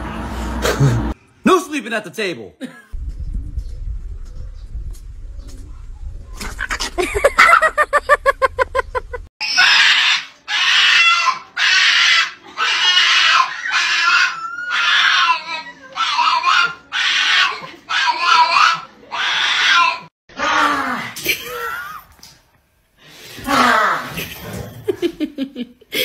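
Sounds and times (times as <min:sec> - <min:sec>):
dog screaming and squealing: 0:09.4 - 0:20.1.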